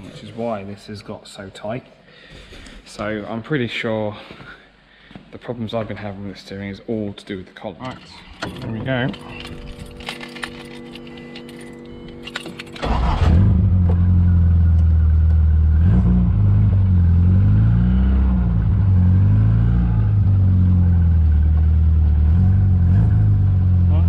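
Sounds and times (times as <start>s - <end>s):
car engine starting and running: 8.1s - 24.0s.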